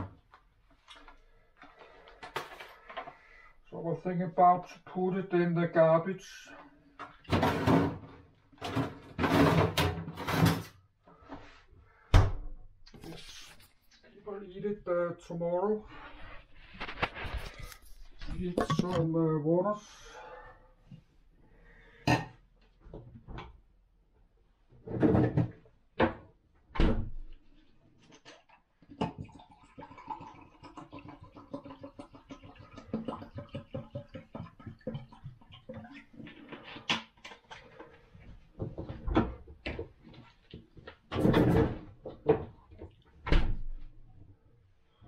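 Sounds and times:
water pouring with glugging: 27.5s - 38.5s.

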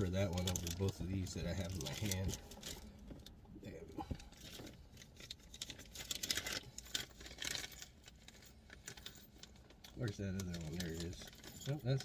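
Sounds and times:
plastic bag of screws rustling: 0.0s - 3.3s, 4.2s - 12.0s.

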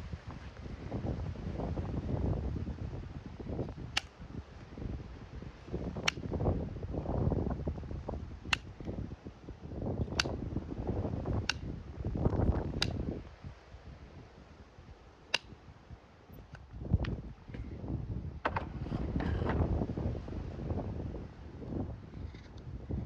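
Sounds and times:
nail puller metallic clicks: 3.9s - 4.2s, 6.0s - 6.2s, 8.5s - 8.7s, 10.1s - 10.3s.

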